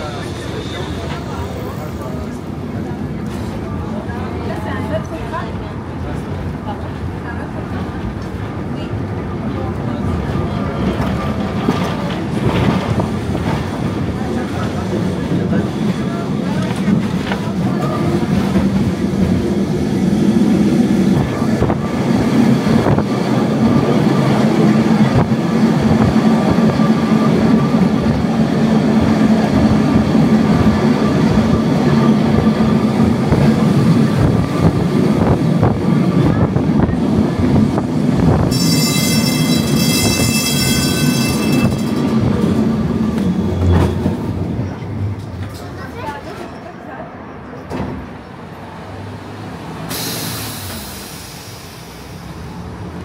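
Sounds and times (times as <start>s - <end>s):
tram wheels and motor rumbling: 0.0s - 53.0s
high wheel squeal: 38.5s - 41.9s.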